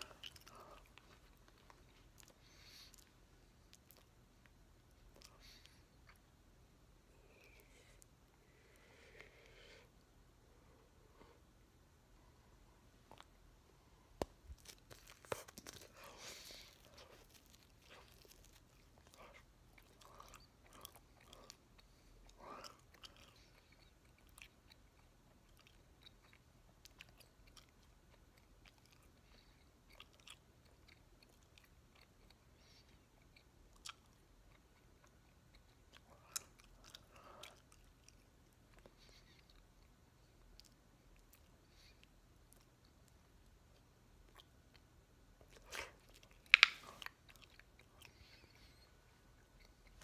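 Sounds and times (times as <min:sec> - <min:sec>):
gum chewing wet smacking: 0:14.2 - 0:50.0.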